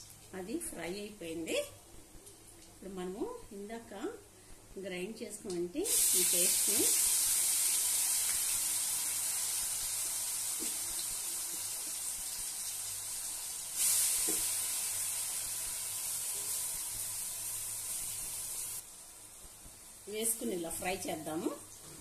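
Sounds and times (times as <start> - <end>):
paste sizzling in hot oil: 5.9 - 18.8.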